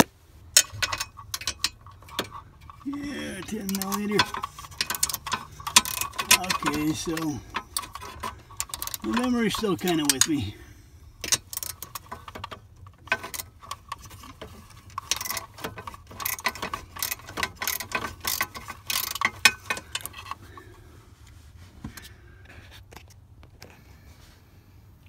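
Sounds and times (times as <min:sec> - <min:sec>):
hand ratchet clicking: 0:00.0 - 0:10.5, 0:11.2 - 0:20.4.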